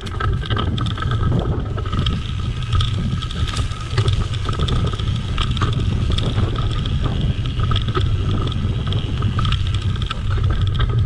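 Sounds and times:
bike rattling and clicking: 0.0s - 11.0s
tyres rumbling over dirt: 0.0s - 11.0s
wind rushing over microphone: 0.0s - 11.0s.

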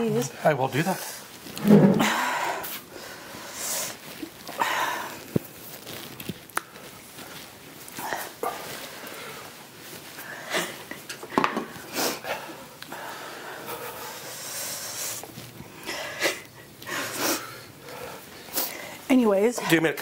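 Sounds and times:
woman breathing hard: 1.9s - 5.4s, 11.8s - 19.1s
woman sniffling: 15.8s - 17.7s.

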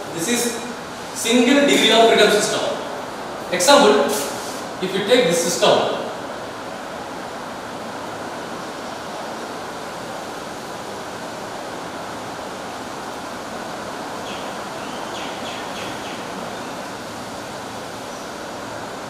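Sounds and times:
room noise hiss: 0.0s - 19.0s.

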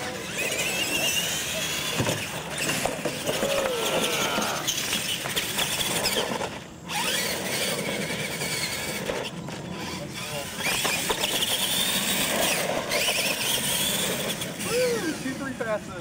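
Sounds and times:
electric motors whining: 0.0s - 16.0s.

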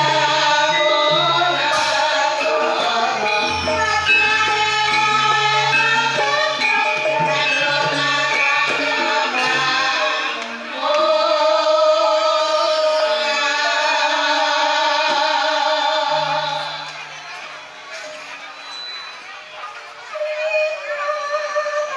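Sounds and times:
metallophone and gong-chime notes: 0.0s - 10.4s
gamelan ensemble playing: 0.0s - 18.9s.

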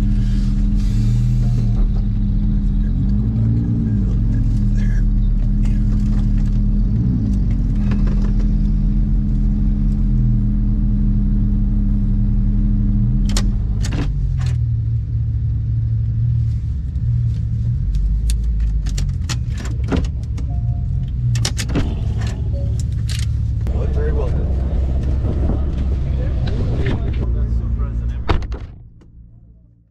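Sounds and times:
car engine running: 0.0s - 29.8s
sharp clicks and rattles: 17.9s - 27.4s.

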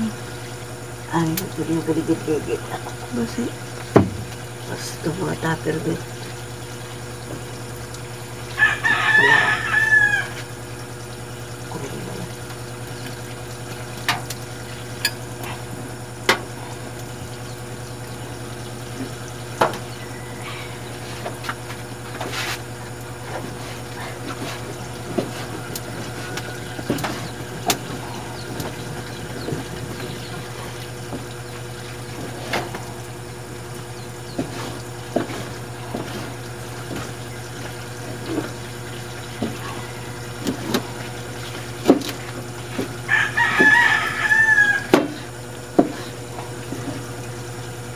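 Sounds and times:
steady low hum: 0.0s - 47.9s
rooster crowing: 8.5s - 10.6s, 19.8s - 21.2s, 24.8s - 27.3s, 39.6s - 41.0s, 43.0s - 45.3s.

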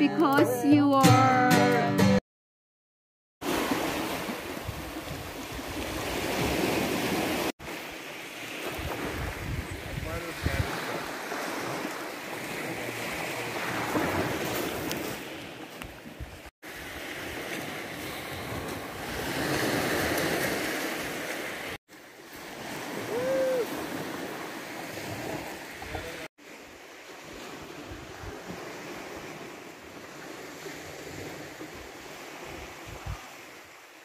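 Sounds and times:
waves washing onto pebbles: 3.4s - 16.0s, 16.6s - 34.0s
wind buffeting microphone: 8.6s - 12.6s.

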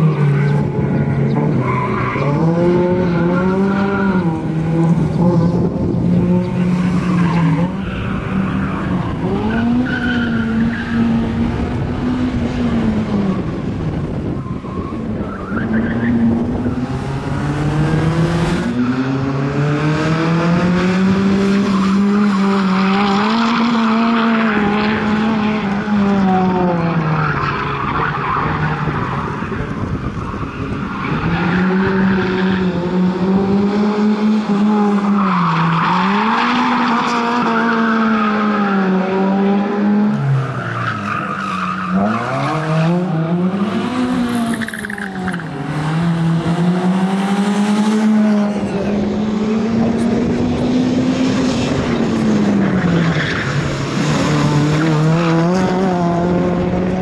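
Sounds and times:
car engine revving hard: 16.3s - 26.8s, 41.9s - 57.0s.

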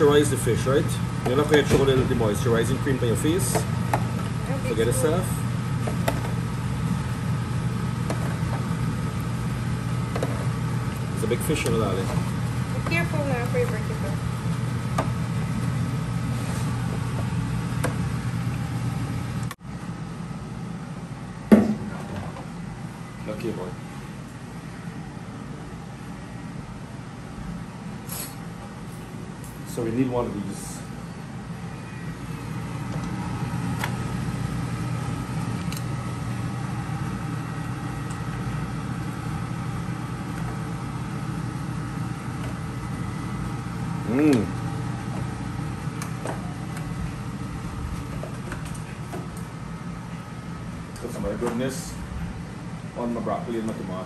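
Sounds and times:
kitchen fan hum: 0.0s - 54.0s
thin high whine: 28.0s - 45.5s.

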